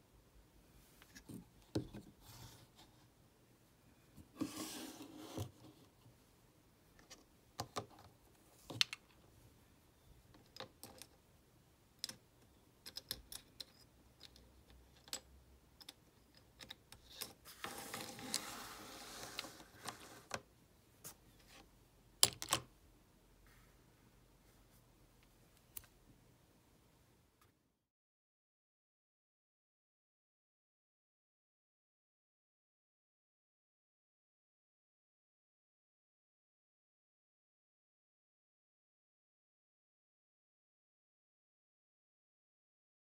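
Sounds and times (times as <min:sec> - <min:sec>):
rubbing and rustling: 0:17.3 - 0:20.4.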